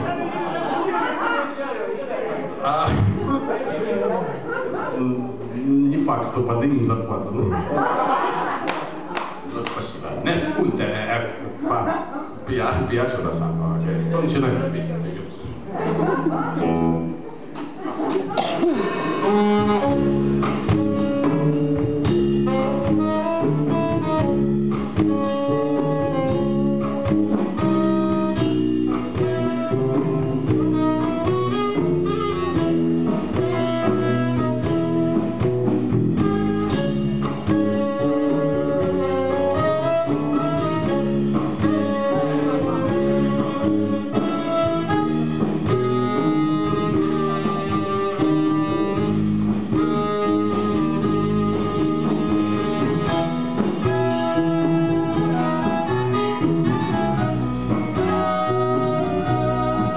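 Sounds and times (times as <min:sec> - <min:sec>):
drum kit: 0:02.8 - 0:03.4, 0:15.6 - 0:59.9
electric guitar: 0:12.7 - 0:59.9
clarinet melody: 0:19.0 - 0:59.9.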